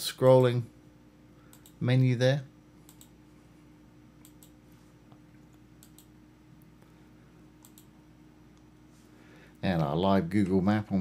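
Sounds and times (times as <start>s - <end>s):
low room hum: 0.0s - 11.0s
computer mouse clicks: 1.5s - 1.8s, 2.9s - 3.2s, 4.2s - 4.6s, 5.5s - 6.1s, 7.6s - 7.9s.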